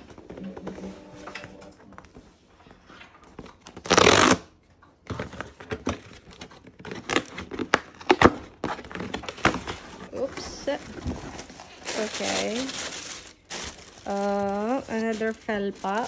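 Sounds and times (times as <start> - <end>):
cardboard box tearing open: 5.7 - 16.0.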